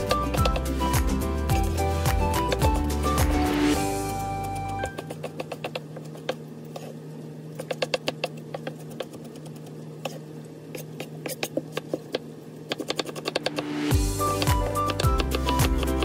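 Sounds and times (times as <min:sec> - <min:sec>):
knife chopping on cutting board: 0:00.0 - 0:02.9, 0:04.9 - 0:06.4, 0:07.6 - 0:10.2, 0:10.8 - 0:16.0.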